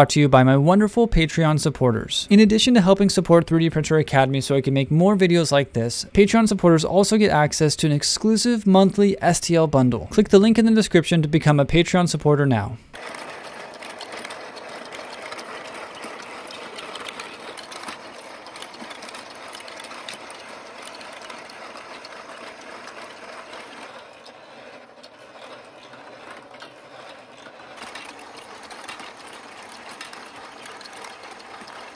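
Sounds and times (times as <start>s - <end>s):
plastic gears and chain turning: 12.9s - 31.9s
steel balls clattering on plastic tracks: 12.9s - 31.9s.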